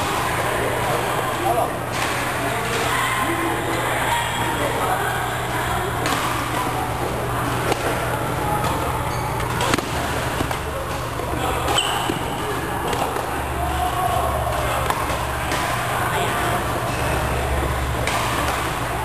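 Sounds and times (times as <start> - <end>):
racquets striking shuttlecock: 8.6 - 13.3.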